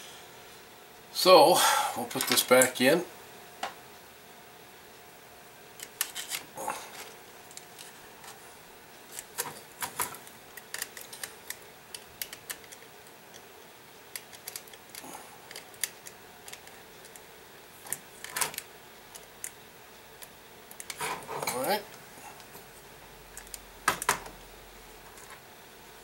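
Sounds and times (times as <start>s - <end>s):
metallic clicks of clock parts: 14.1s - 17.2s.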